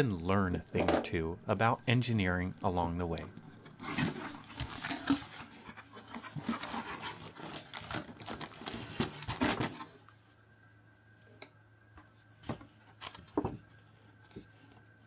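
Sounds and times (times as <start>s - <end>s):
cardboard box and plastic rustling: 3.7s - 10.1s.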